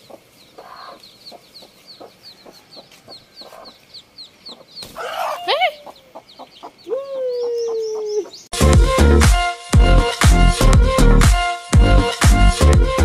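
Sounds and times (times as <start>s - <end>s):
chicks peeping: 0.0s - 8.5s
hen squawking: 0.6s - 1.0s, 4.5s - 8.5s.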